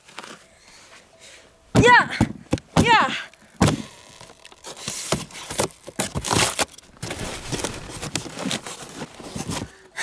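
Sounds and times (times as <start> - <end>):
plastic film tearing: 3.9 - 9.2.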